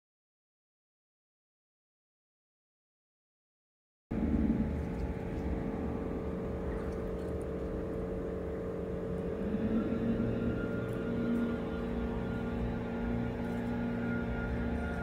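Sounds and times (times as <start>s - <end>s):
faint steady hum: 4.1s - 15.0s.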